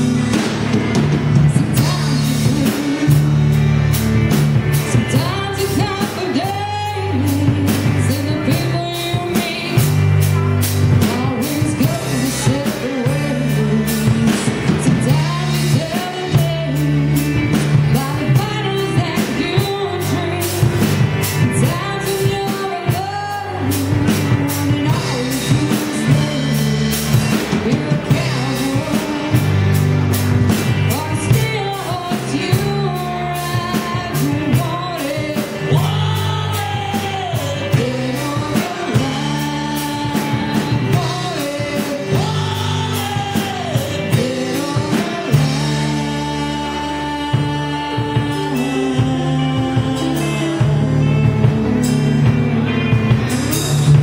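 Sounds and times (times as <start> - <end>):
bass guitar: 0.0 - 54.0
electric guitar: 0.0 - 54.0
woman singing: 0.0 - 54.0.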